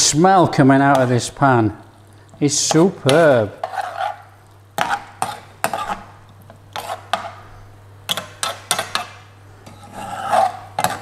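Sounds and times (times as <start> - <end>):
metal spoon scraping frying pan: 2.7 - 6.1, 6.7 - 7.4, 8.1 - 11.0.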